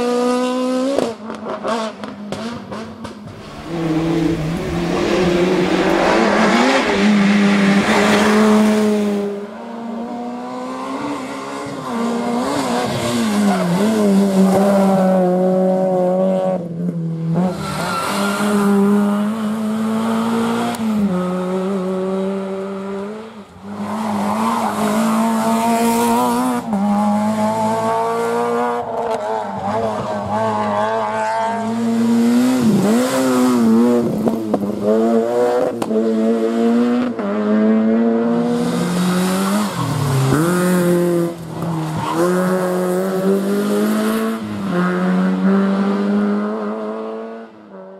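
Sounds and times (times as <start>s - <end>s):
rally car engines revving: 0.0s - 47.9s.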